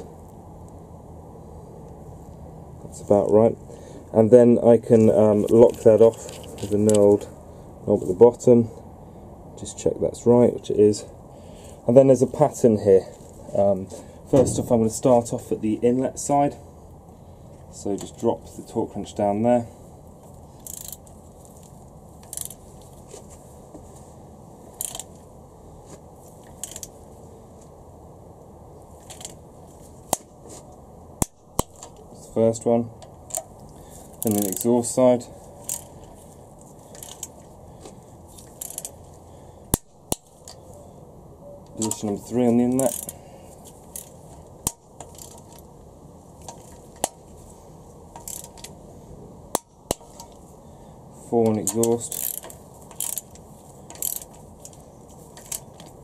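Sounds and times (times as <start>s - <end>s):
torque wrench ratchet clicks: 20.6s - 21.1s, 22.2s - 22.6s, 24.8s - 25.2s, 26.5s - 26.9s, 29.0s - 29.4s, 34.2s - 34.7s, 35.6s - 36.1s, 36.9s - 37.4s, 38.4s - 39.0s, 42.7s - 43.2s, 43.9s - 45.6s, 48.2s - 48.7s, 51.5s - 54.8s.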